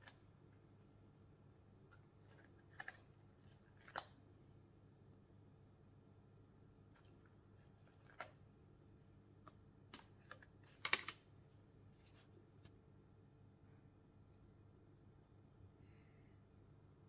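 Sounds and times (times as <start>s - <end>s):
plastic tray clicking and crinkling: 9.5s - 11.3s.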